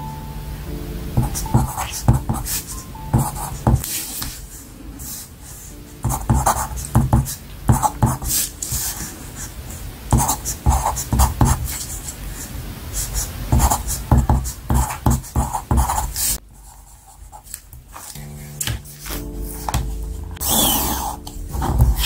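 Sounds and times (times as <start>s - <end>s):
background music: 0.0s - 9.6s, 18.1s - 22.0s
pencil writing on paper: 1.2s - 4.4s, 5.0s - 12.2s, 13.0s - 22.0s.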